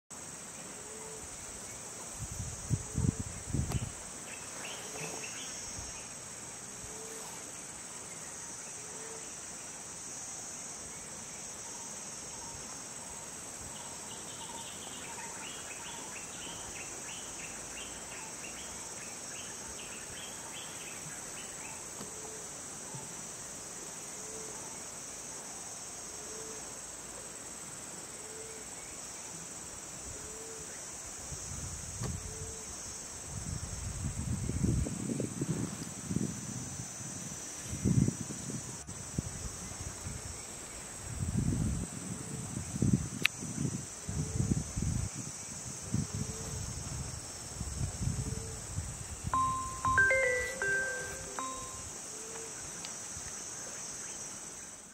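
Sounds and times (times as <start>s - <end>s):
insect chorus drone: 0.1s - 54.9s
scattered chirps: 49.4s - 51.9s.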